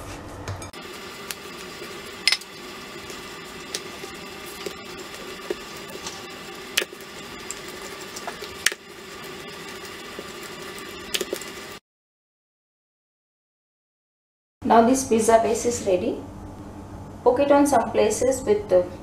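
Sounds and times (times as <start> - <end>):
steady hum: 0.7 - 11.8
rolling pin rolling dough: 0.8 - 11.6.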